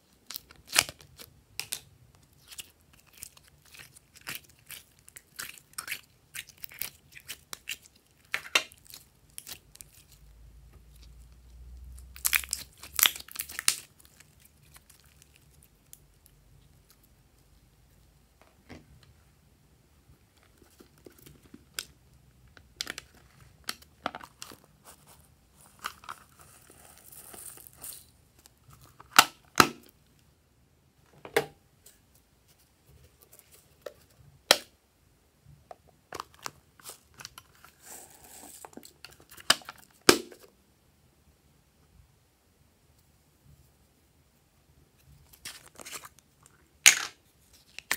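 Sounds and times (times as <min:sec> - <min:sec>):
packets crinkling and tearing: 0:11.9 - 0:16.2.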